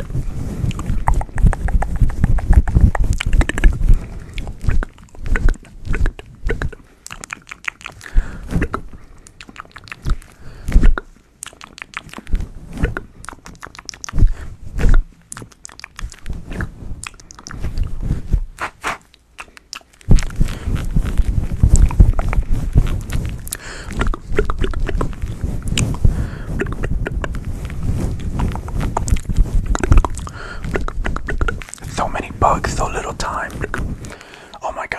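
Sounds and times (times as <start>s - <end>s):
gloved hands rubbing microphone windscreen: 0.0s - 6.8s, 16.2s - 19.1s, 20.0s - 34.9s.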